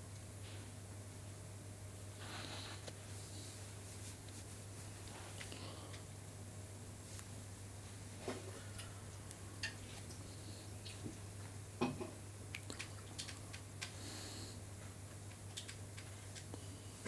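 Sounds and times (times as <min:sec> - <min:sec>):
steady low hum: 0:00.0 - 0:17.0
small clicks and taps: 0:12.5 - 0:14.0, 0:15.1 - 0:16.6.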